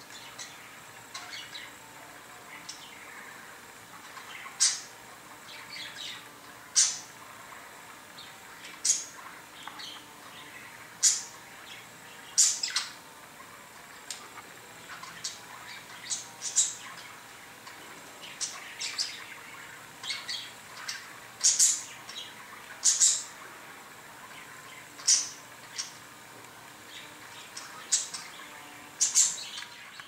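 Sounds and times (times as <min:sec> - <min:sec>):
budgerigar chirping: 0:18.4 - 0:23.4.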